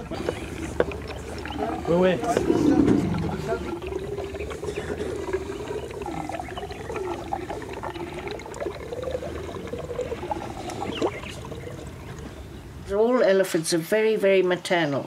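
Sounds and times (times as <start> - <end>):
elephant calf gurgling and slurping: 0.0 - 12.8
wavering moaning tone: 0.7 - 8.2.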